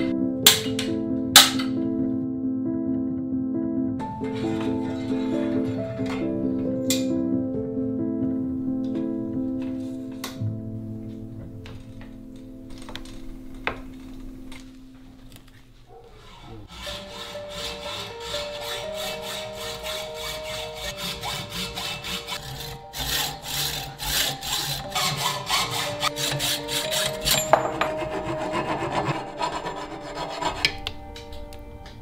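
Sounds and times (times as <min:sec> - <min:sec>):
hacksaw cutting metal tube: 0:04.2 - 0:06.2, 0:16.2 - 0:30.8.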